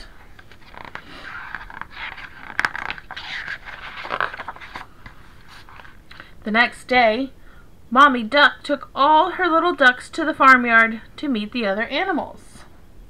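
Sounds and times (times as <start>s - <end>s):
book pages rustling: 0.1s - 6.3s.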